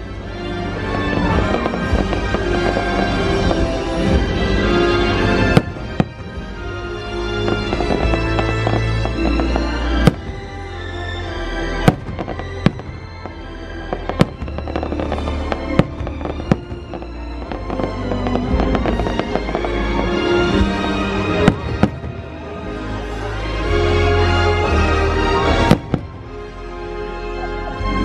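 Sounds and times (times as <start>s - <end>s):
fireworks show music: 0.0s - 28.0s
fireworks shells bursting: 1.3s - 4.3s, 7.3s - 10.9s, 11.7s - 22.2s.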